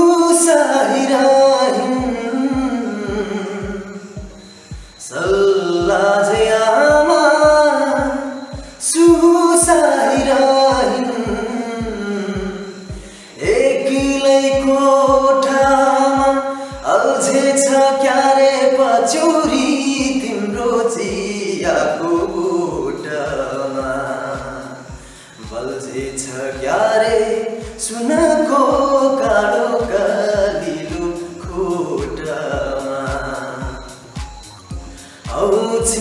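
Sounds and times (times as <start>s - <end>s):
man singing slowly: 0.0s - 36.0s
singer breathing: 4.0s - 5.0s, 8.5s - 8.8s, 12.8s - 13.4s, 16.5s - 16.8s, 24.9s - 25.5s, 34.8s - 35.3s.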